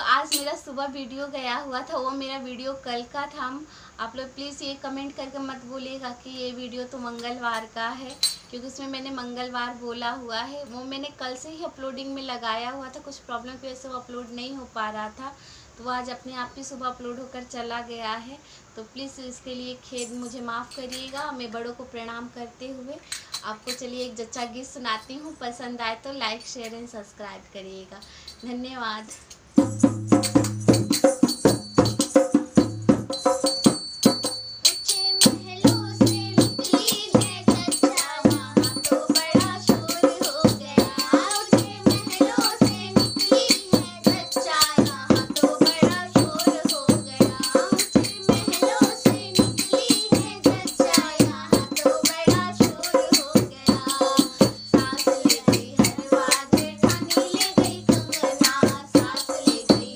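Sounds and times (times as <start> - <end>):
woman and girl singing folk song: 0.0 - 27.2, 34.0 - 59.9
steady percussion beat: 29.3 - 59.9.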